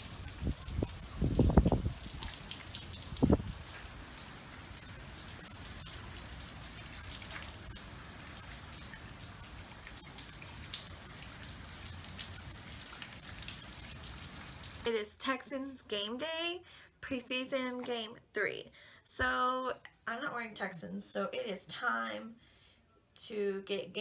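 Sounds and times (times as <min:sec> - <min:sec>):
heavy rain falling: 0:00.0 - 0:14.9.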